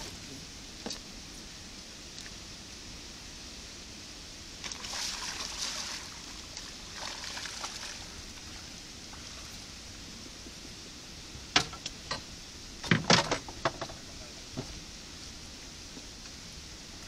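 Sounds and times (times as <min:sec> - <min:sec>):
water rushing through a spillway: 0:03.7 - 0:10.6.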